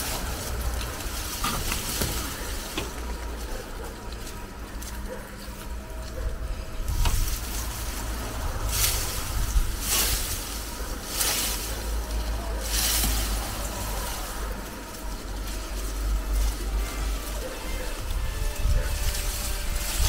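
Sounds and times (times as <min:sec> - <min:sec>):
dry cane stalks rustling: 0:00.0 - 0:20.0
steady low rumble: 0:00.0 - 0:20.0.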